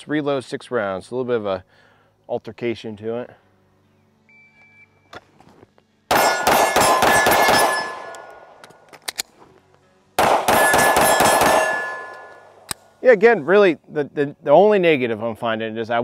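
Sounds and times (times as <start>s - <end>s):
short beep: 4.3s - 5.1s
rapid pistol shots: 6.1s - 8.5s, 10.2s - 12.7s
magazine reload clicks: 6.1s - 9.4s, 10.2s - 12.9s.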